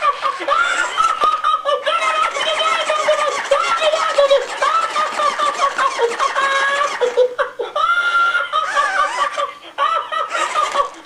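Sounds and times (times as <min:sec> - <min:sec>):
toy laughing in high voice: 0:00.0 - 0:11.0.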